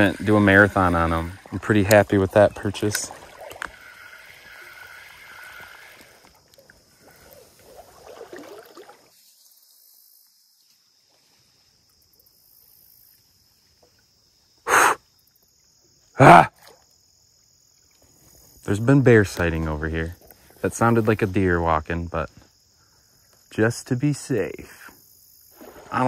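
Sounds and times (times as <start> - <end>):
water swishing and splashing: 0.0 - 9.2, 25.4 - 26.0
high insect drone: 0.0 - 26.0.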